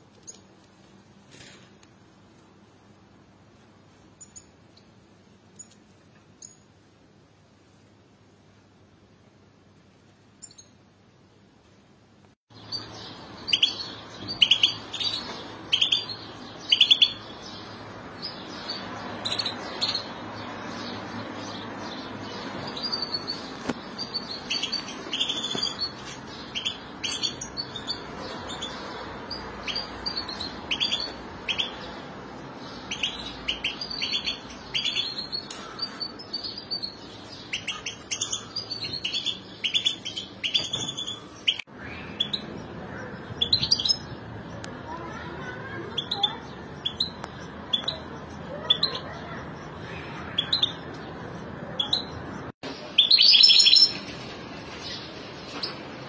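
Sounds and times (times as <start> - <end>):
goldfinches chirping: 12.5 - 32.0, 32.6 - 44.5.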